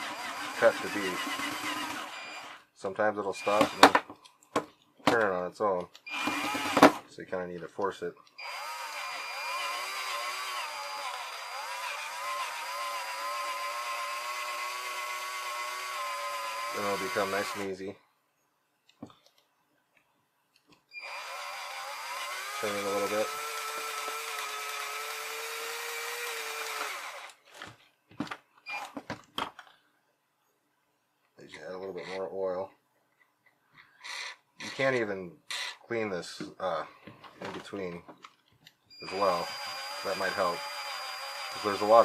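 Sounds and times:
power drill running: 0.0 - 2.7, 3.4 - 4.0, 6.1 - 7.0, 8.4 - 17.7, 21.0 - 27.4, 39.0 - 42.0.

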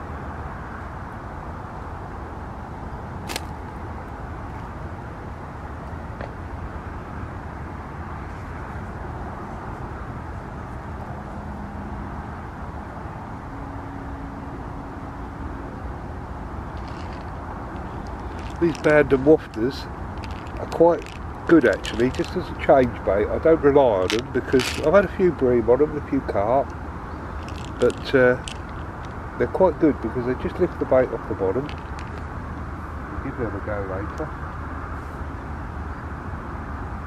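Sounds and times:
outdoor background rumble: 0.0 - 37.0
sharp click: 3.3 - 3.6.

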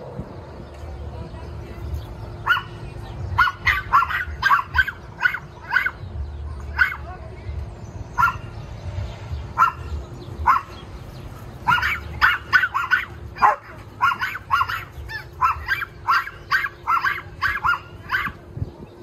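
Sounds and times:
dog barking: 2.4 - 2.8, 3.4 - 6.0, 6.8 - 7.0, 8.2 - 8.5, 9.6 - 10.8, 11.6 - 18.4.

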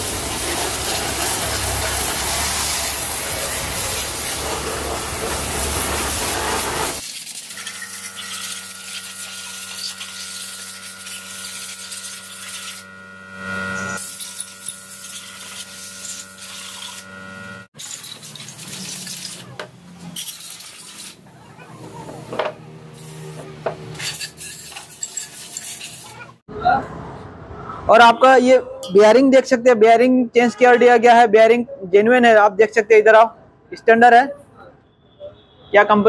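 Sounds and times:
spray gun hissing: 0.0 - 12.8.

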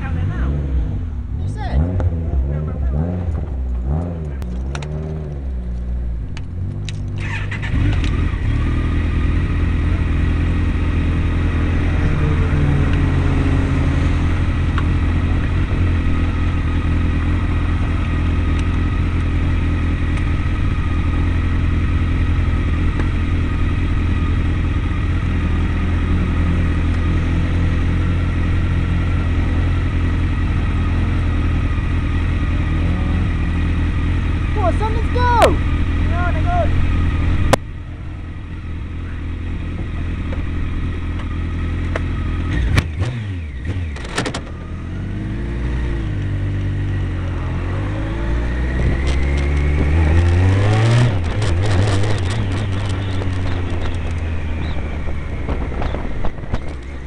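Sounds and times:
car engine idling: 0.0 - 45.4.

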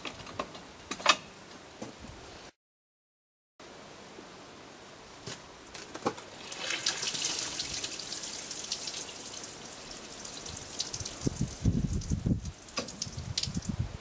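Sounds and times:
water squirting and spattering: 6.3 - 13.9.

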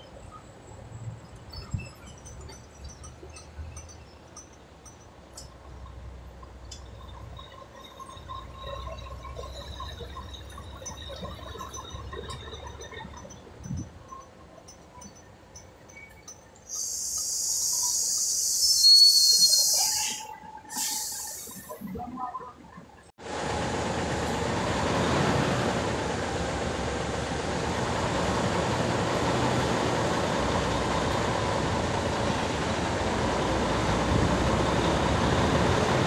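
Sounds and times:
truck diesel engine rumbling: 0.0 - 18.7, 19.8 - 36.0
air brakes hissing: 16.7 - 21.9.

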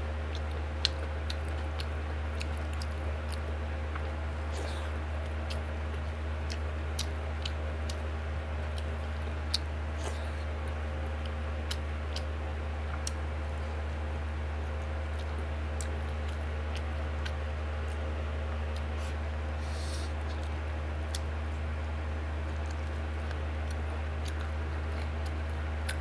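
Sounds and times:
steady low hum: 0.0 - 26.0
chewing clicks: 0.3 - 13.3, 14.7 - 18.0, 20.2 - 21.6, 22.5 - 26.0.

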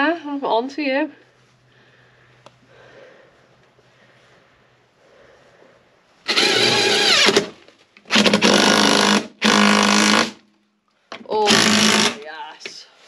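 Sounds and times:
impact driver bursts: 6.3 - 10.4, 11.4 - 12.2.

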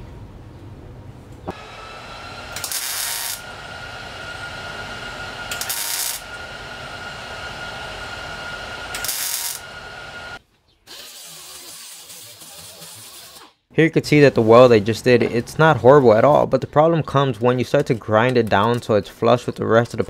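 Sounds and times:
steady background hum: 0.0 - 10.4
welding bursts on sheet metal: 2.5 - 3.5, 5.5 - 6.4, 8.9 - 9.7, 10.9 - 13.5.

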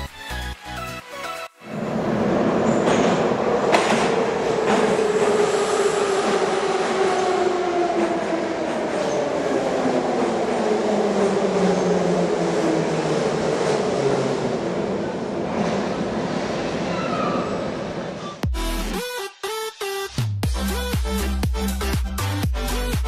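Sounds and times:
train rumble: 1.6 - 18.5.

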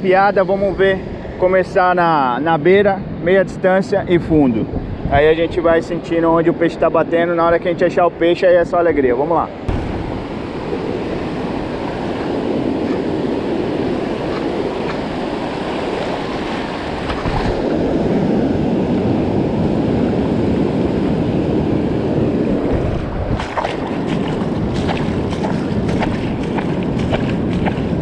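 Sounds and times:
wind buffeting microphone: 0.0 - 6.4, 9.7 - 28.0
surf breaking on beach: 9.7 - 28.0.

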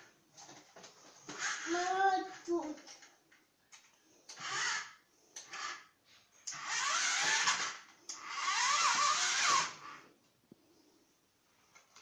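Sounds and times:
toy car electric motor whirring: 1.3 - 3.0, 4.3 - 5.9, 6.5 - 10.0.

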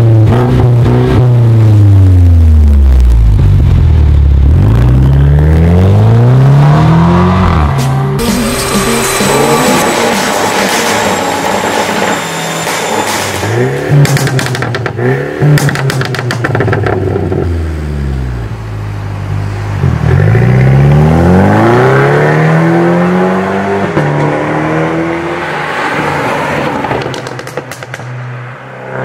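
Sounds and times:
car accelerating hard: 0.0 - 12.0, 19.8 - 27.8
car engine revving with crackles: 0.0 - 29.0.

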